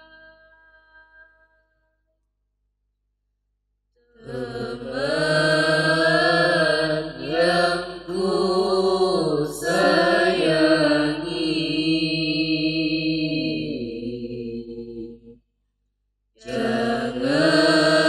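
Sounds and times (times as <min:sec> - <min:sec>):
group singing: 0:04.2 - 0:15.4, 0:16.4 - 0:18.0.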